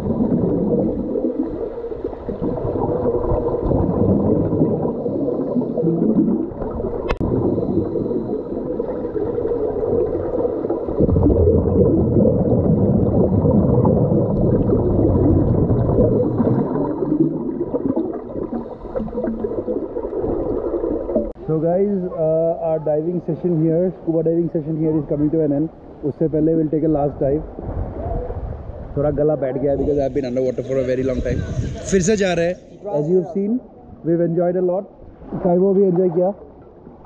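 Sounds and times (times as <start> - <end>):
muffled underwater water rush: 0.0 - 37.0.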